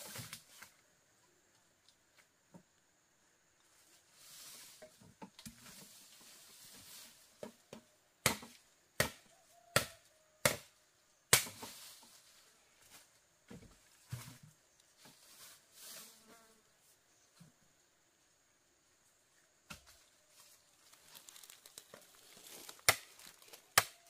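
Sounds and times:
blade chopping bamboo: 8.2s - 9.2s, 9.8s - 10.7s, 11.3s - 11.7s, 22.7s - 24.0s.

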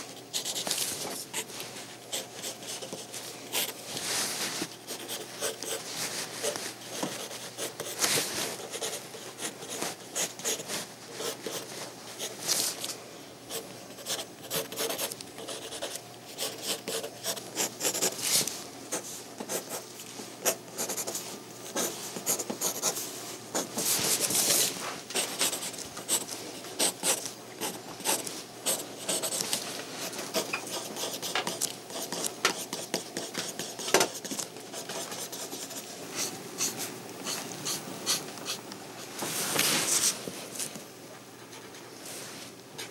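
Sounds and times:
pencil scratching on paper: 0.3s - 0.7s, 4.9s - 12.3s, 13.5s - 18.2s, 20.5s - 23.0s, 25.2s - 29.4s, 30.3s - 38.6s.

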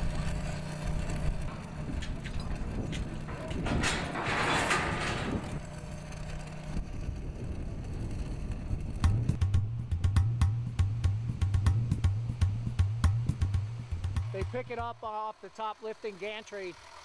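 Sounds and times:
low machine hum: 0.0s - 17.0s
drum-led music: 9.0s - 15.0s.

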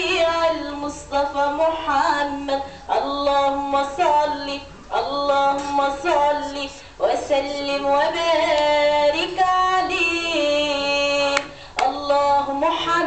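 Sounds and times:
woman singing into a microphone: 0.0s - 13.0s.

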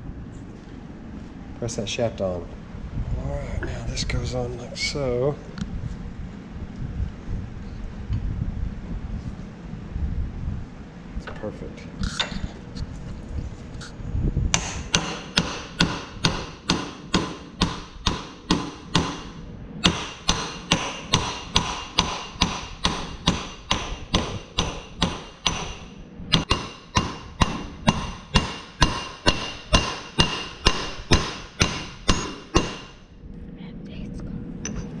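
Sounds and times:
hammer blows on metal: 14.5s - 33.1s.

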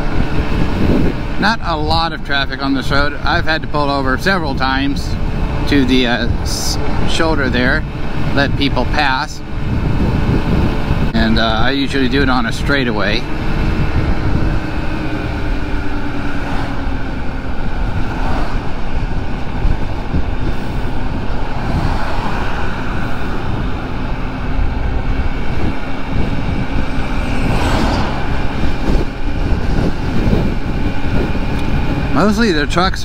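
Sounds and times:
wind buffeting microphone: 0.0s - 33.0s
vehicle passing: 12.3s - 32.2s.

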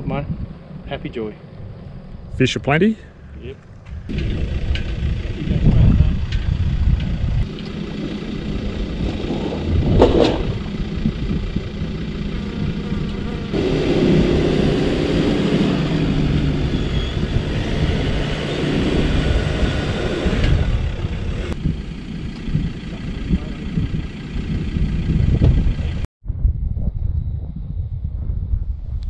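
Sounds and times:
pickup truck engine running: 3.1s - 26.1s.

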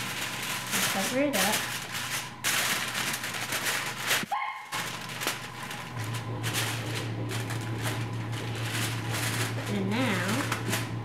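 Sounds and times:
aluminium foil crinkling: 0.0s - 11.0s
low steady hum: 0.0s - 11.0s.

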